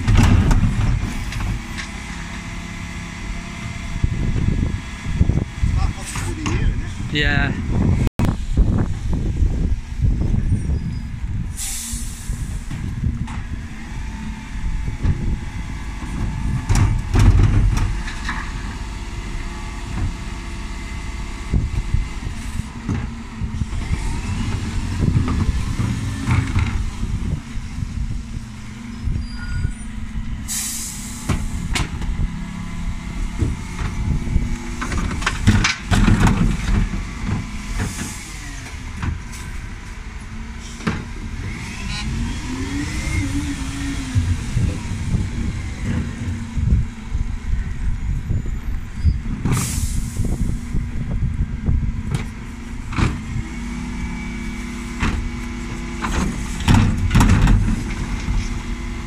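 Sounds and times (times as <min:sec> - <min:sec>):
lorry diesel engine running: 0:00.0 - 0:59.0
air brake hiss: 0:11.5 - 0:12.7, 0:30.5 - 0:31.6, 0:49.5 - 0:50.6.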